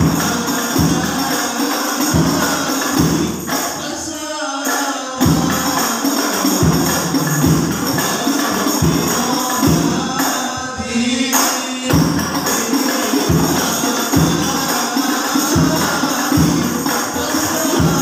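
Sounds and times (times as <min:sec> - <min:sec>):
frame drums: 0:00.0 - 0:18.0.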